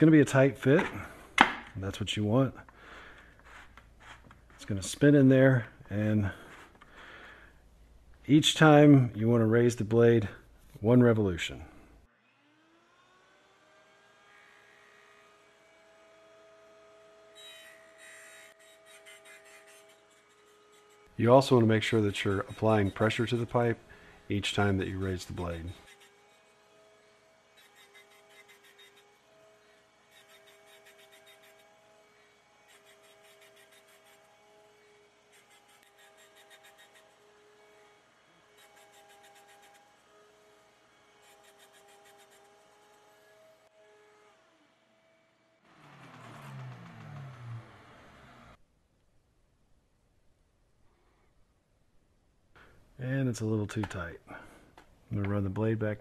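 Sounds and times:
saw blade scraping pipe: 3.2 - 4.9, 17.4 - 23.8, 24.4 - 26.7, 27.6 - 29.2, 30.1 - 34.3, 35.3 - 37.3, 38.6 - 40.0, 41.2 - 43.0
plastic pipe ring scraping in wood: 3.2 - 5.0
table saw humming: 12.2 - 48.6.

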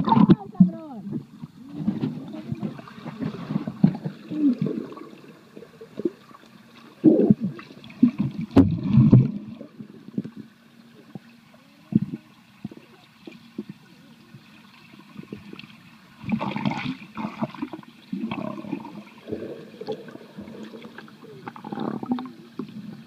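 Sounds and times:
underwater thumps and knocks: 0.0 - 4.2, 7.2 - 9.5
water swirling and gurgling underwater: 0.0 - 23.0.

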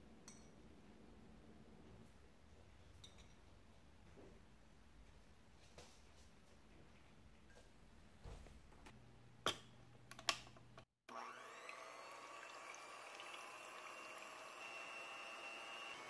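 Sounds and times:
electric hand mixer whining: 11.1 - 16.0.

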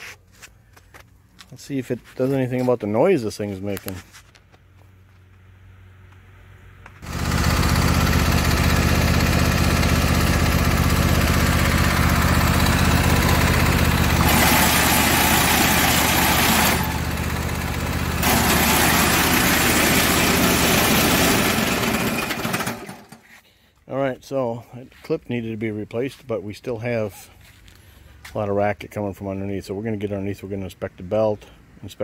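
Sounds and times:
loud racket under tractor: 6.1 - 23.4
lawn tractor engine running: 6.7 - 23.4.

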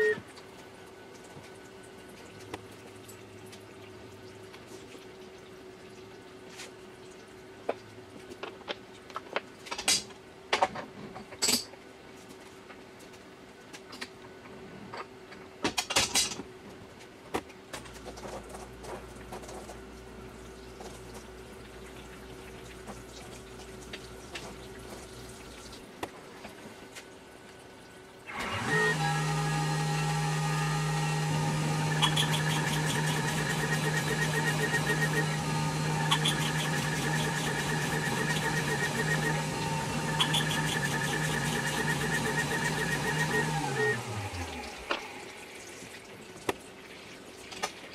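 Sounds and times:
spindle motor tone: 0.0 - 0.2, 28.3 - 45.4
sharp machine clacks: 31.8 - 35.4, 36.0 - 44.0.

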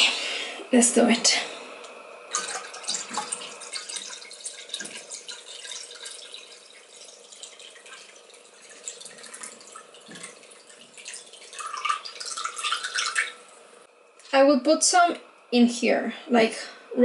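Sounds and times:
liquid trickling into bowl: 2.3 - 13.7.

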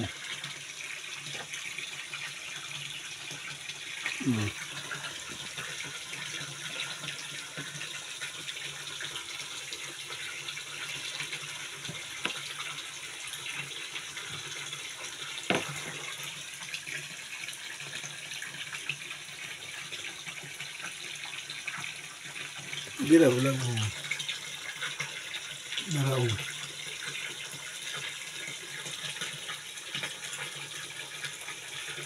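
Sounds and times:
water running and splashing: 0.0 - 32.0.

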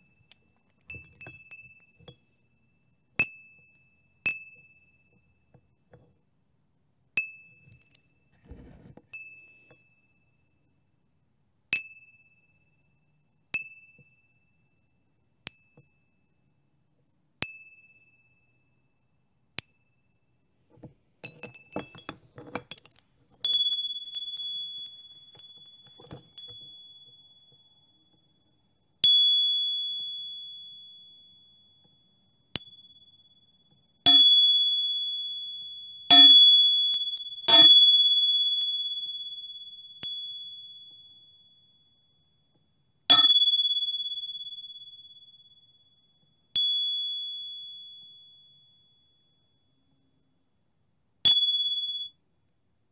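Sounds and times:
light bell tinkles: 0.0 - 5.8, 7.2 - 8.4, 9.1 - 10.7, 17.5 - 50.1, 51.3 - 52.2
small high-pitched bells ringing: 0.0 - 5.8, 9.1 - 10.7, 21.2 - 50.2, 51.3 - 52.2.

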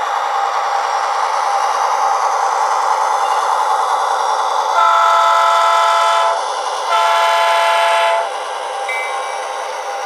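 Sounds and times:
diesel engine sound: 0.0 - 10.0
train horn blasts: 4.7 - 8.4.

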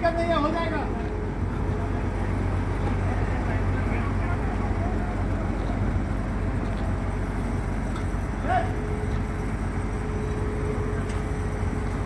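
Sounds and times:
diesel engines droning: 0.0 - 12.0.

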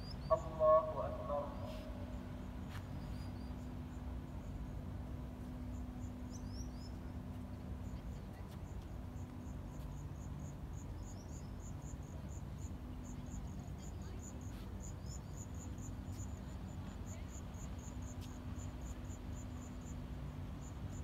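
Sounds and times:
faint hum: 0.0 - 21.0
cricket chirping: 7.8 - 21.0.

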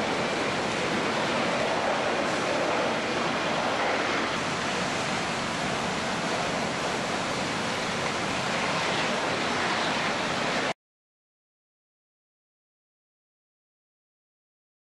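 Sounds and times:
steady rushing noise: 0.0 - 10.8.

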